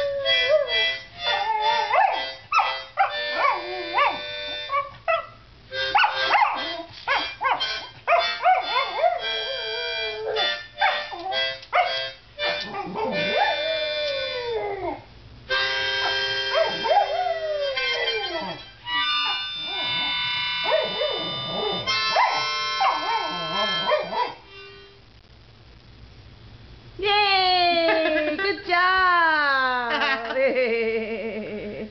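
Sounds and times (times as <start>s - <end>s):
dog howling: 0.0s - 5.3s, 6.0s - 15.1s, 16.0s - 24.4s
harmonica chords: 0.0s - 14.8s, 15.5s - 25.2s.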